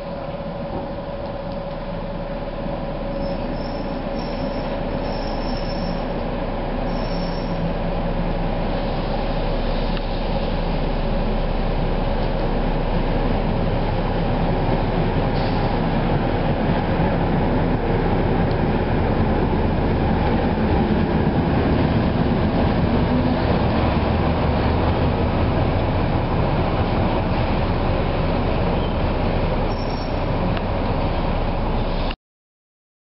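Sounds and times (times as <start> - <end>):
electric locomotive rumbling: 0.0 - 32.2
high wheel squeals: 3.1 - 6.2, 6.9 - 7.6, 29.7 - 30.3.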